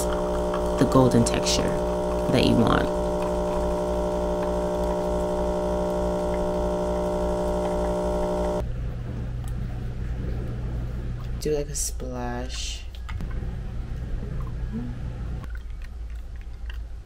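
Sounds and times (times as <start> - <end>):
espresso machine pump humming: 0.0 - 8.6
lower quiet hum: 0.0 - 17.0.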